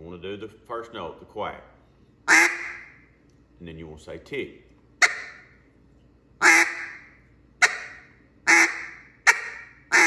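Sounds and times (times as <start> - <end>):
duck call quacks: 2.3 - 2.9, 5.0 - 5.4, 6.4 - 10.0.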